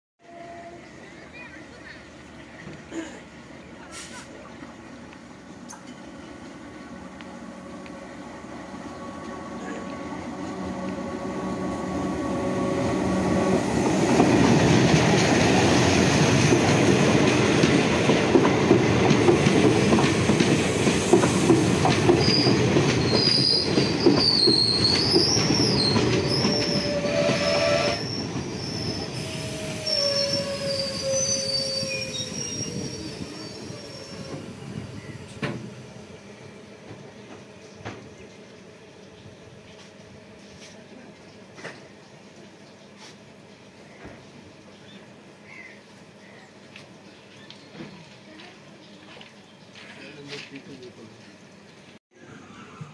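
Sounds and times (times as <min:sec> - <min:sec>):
train wheels rumbling and clattering: 0:08.8 - 0:31.6, 0:32.2 - 0:35.9
high wheel squeal: 0:22.2 - 0:34.5.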